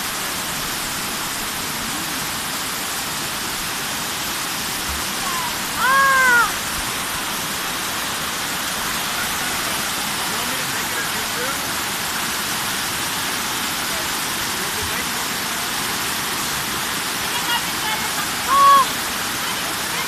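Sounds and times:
waterfall rushing: 0.0 - 20.0
short high cry: 5.2 - 6.6, 18.5 - 18.9.

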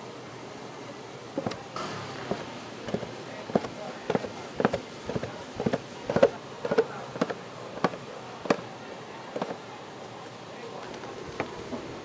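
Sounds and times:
scraper knocking on steel tray: 1.4 - 8.6.

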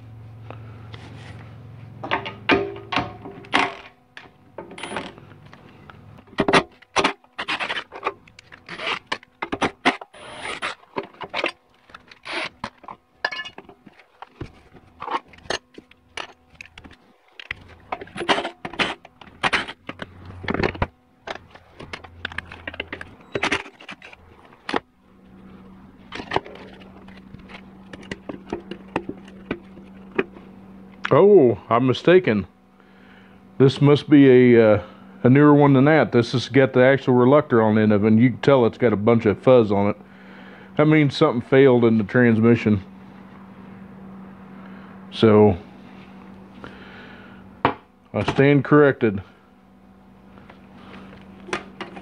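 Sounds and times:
low steady hum: 0.0 - 52.0
metal tools clinking and scraping: 10.2 - 14.1.

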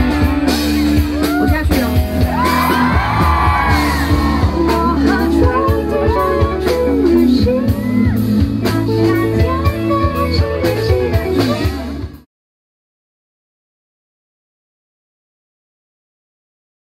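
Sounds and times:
instrumental accompaniment with bass: 0.0 - 12.3
crowd cheering and whooping: 1.1 - 5.3, 7.5 - 8.4
woman singing into microphone: 3.8 - 11.9.

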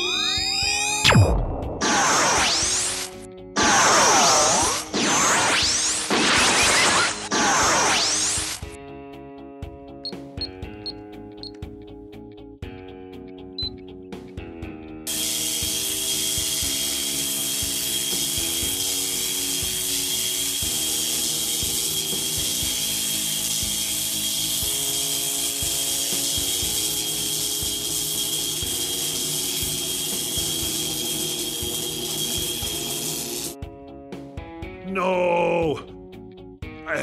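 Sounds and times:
background music: 0.0 - 37.0
spray gun hissing blast: 15.1 - 33.6.

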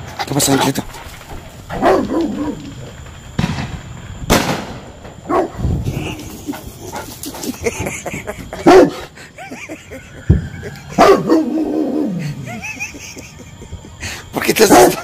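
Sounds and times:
firework bangs: 0.0 - 9.1, 10.3 - 11.4.

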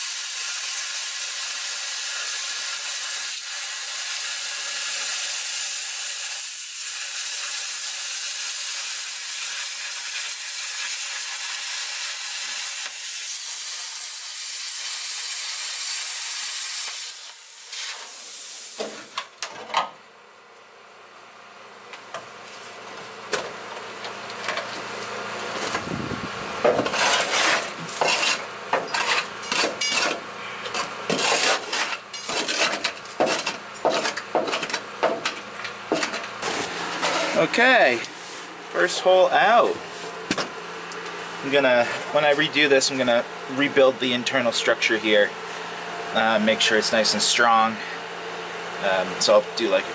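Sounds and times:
plasma cutter arc hissing: 0.0 - 19.2.

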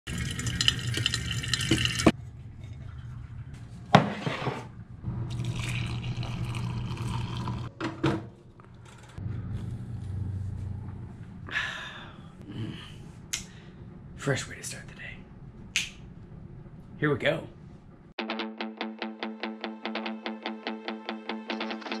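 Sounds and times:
coffee splashing into glass carafe: 0.1 - 2.1, 5.3 - 7.7
coffee pouring into mug: 0.1 - 2.2, 5.3 - 7.7
low steady hum: 8.4 - 18.1.

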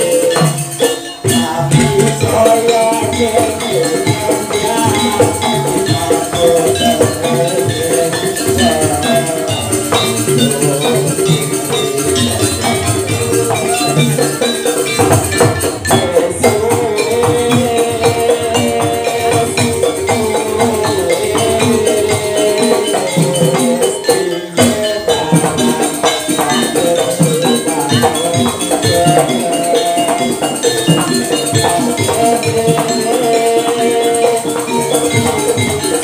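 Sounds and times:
drums and percussion: 0.0 - 36.0
sustained melodic tones: 0.0 - 36.0.

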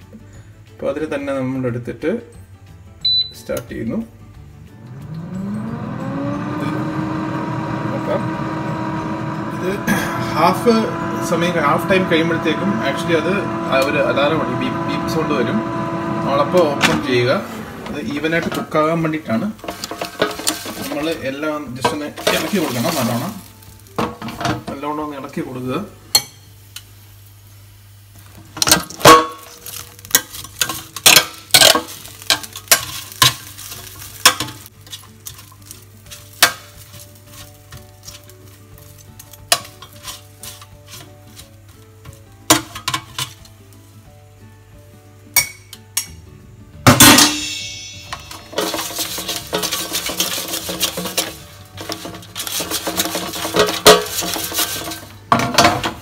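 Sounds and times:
metal spoon clinking on basket: 47.2 - 55.7
loud clatter: 48.2 - 55.6.

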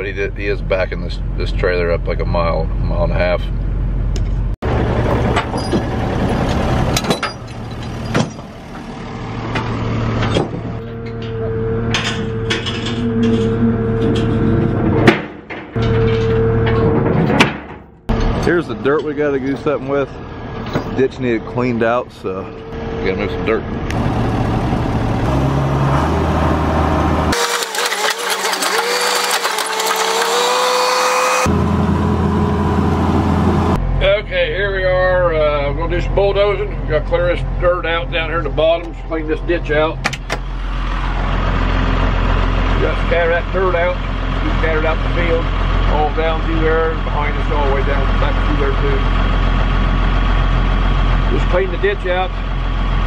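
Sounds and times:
diesel engine revving: 0.0 - 17.1, 18.0 - 53.0
metal chains clanking: 7.0 - 8.6
high steady hum: 10.8 - 17.2
engine idling: 27.3 - 53.0.

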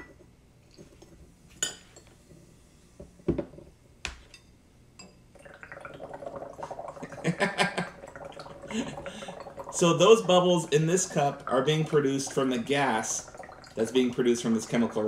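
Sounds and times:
rapid bubbling in water: 5.4 - 15.0.

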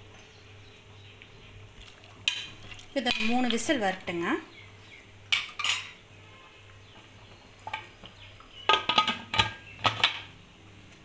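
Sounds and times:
metal cookware clinking: 5.3 - 6.0.

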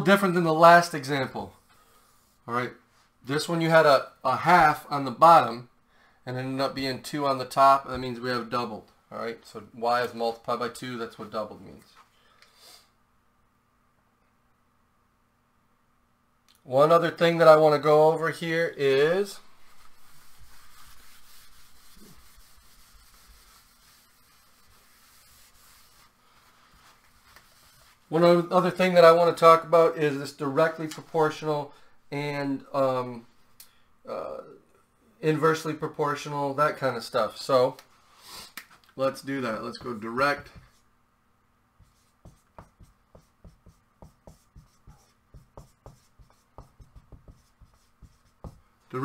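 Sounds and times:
cloth wiping whiteboard: 18.6 - 28.8, 39.6 - 40.9, 41.8 - 48.7.

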